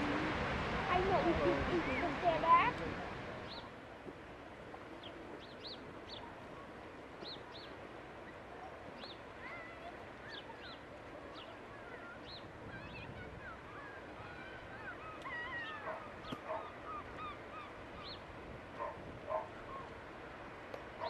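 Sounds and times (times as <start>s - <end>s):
surf: 0.0s - 21.0s
wind: 0.0s - 21.0s
high calls and cries: 5.0s - 20.0s.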